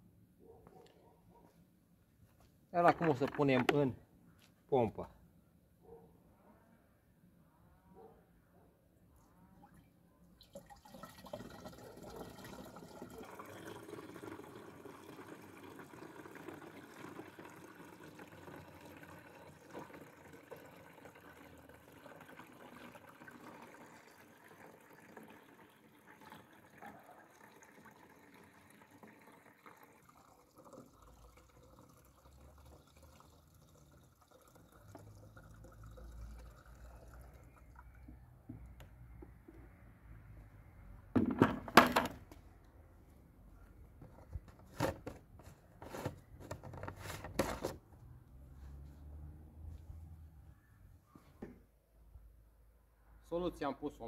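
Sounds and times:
liquid pouring into a tank: 9.6s - 38.8s.

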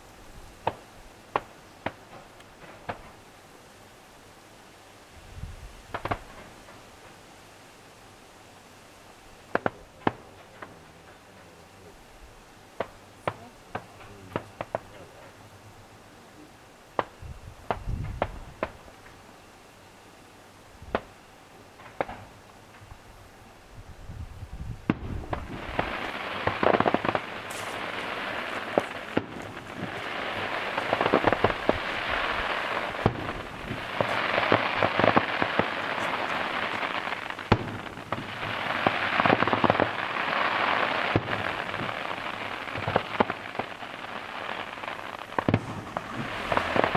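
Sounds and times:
fireworks crackling: 0.0s - 46.9s
firework shells bursting: 21.8s - 22.4s, 24.8s - 46.9s.

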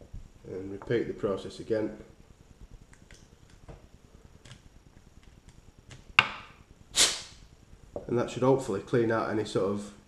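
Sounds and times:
air blowing: 6.9s - 7.4s.

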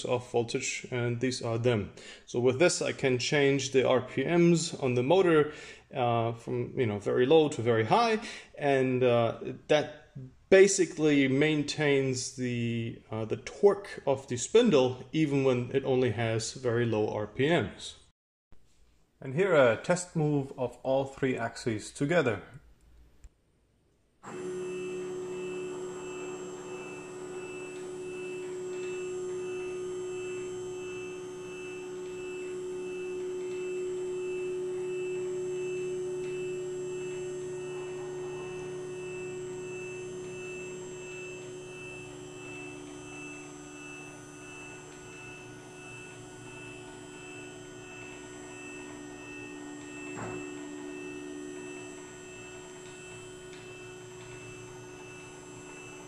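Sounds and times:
lower motor tone: 24.2s - 56.0s
stepper motors humming: 24.2s - 56.0s
faint high pulsing tone: 27.1s - 54.6s.

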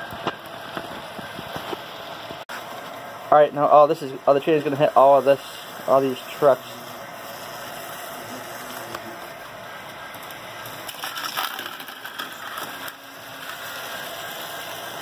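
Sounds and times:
model train running: 3.2s - 15.0s.

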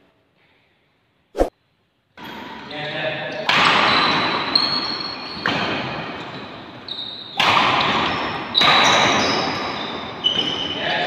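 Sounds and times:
shoes squeaking on court: 3.8s - 11.0s.

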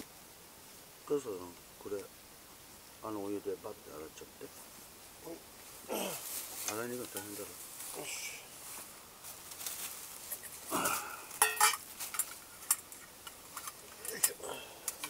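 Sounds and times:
camp gear and plastic bags rustling: 4.5s - 15.0s.

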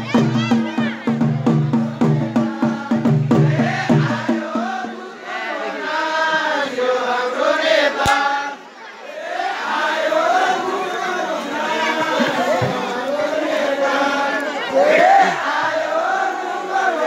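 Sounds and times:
drum beating a steady rhythm: 0.0s - 6.2s, 11.6s - 14.3s
group of voices chanting: 0.0s - 17.0s.

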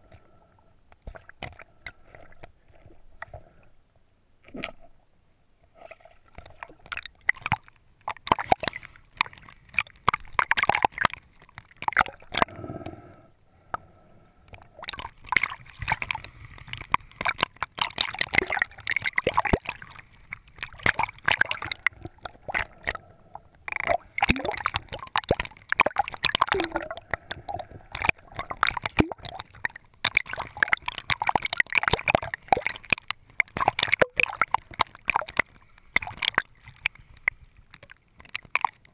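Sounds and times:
water sloshing and splashing: 5.7s - 12.5s, 14.6s - 23.0s, 23.7s - 38.9s
crackling clicks: 6.3s - 13.0s, 14.5s - 38.9s.

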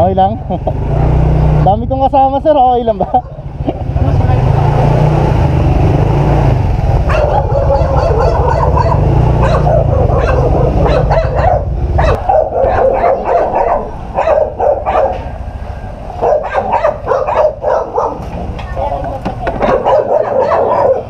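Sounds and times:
motorcycle engine idling: 6.9s - 13.1s
dog barking: 7.0s - 15.4s, 16.2s - 18.4s, 19.6s - 21.0s.

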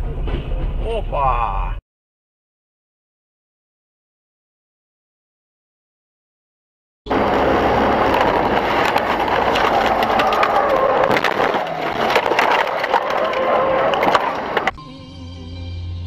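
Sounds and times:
road and wind noise: 0.0s - 1.6s, 7.1s - 14.8s
crackles and sharp clicks: 7.1s - 14.8s.

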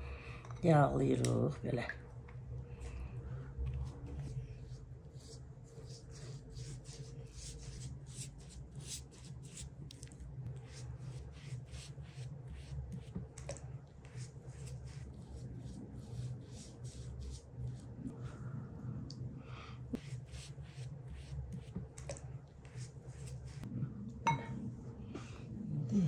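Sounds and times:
pastry brush swishing on dough: 3.7s - 18.3s, 20.0s - 23.7s.

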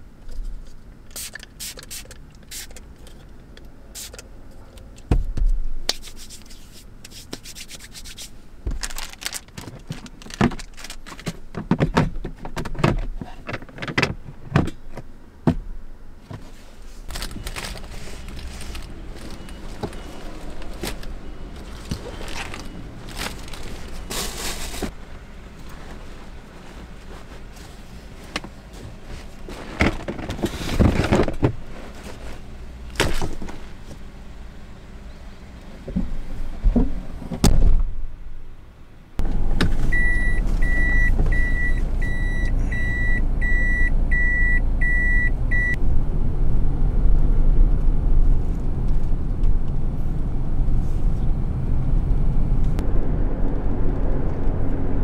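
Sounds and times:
objects scraping and rustling: 16.4s - 25.0s, 25.6s - 32.5s.

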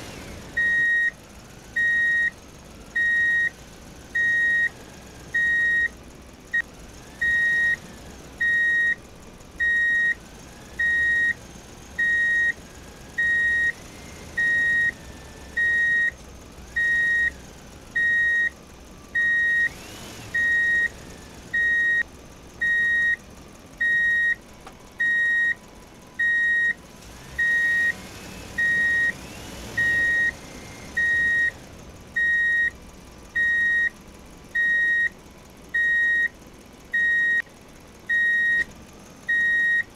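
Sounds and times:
reversing alarm beeps: 0.6s - 1.1s, 1.8s - 2.3s, 3.0s - 3.5s, 4.2s - 4.7s, 5.4s - 5.9s, 7.2s - 7.8s, 8.4s - 9.0s, 9.6s - 10.2s, 10.8s - 11.4s, 12.0s - 12.6s, 13.2s - 13.8s, 14.4s - 15.0s, 15.6s - 16.2s, 16.8s - 17.3s, 18.0s - 18.5s, 19.2s - 19.7s, 20.4s - 20.9s, 21.6s - 22.0s, 22.6s - 23.2s, 23.8s - 24.4s, 25.0s - 25.6s, 26.2s - 26.8s, 27.4s - 27.9s, 28.6s - 29.1s, 29.8s - 30.3s, 31.0s - 31.5s, 32.2s - 32.7s, 33.4s - 33.9s, 34.6s - 35.1s, 35.8s - 36.3s, 37.0s - 37.4s, 38.1s - 38.7s, 39.3s - 39.9s.

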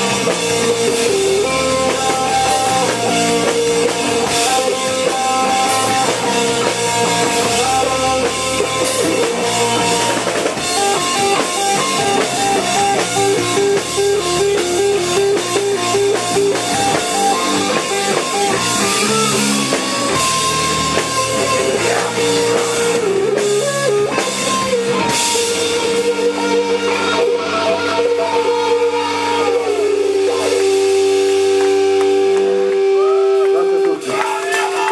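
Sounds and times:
repeating guitar riff: 0.0s - 34.6s
doom rock band playing: 0.0s - 34.9s.

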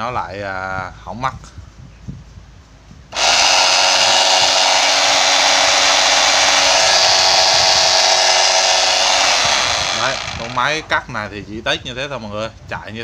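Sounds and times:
drywall cutter running: 3.2s - 11.0s.

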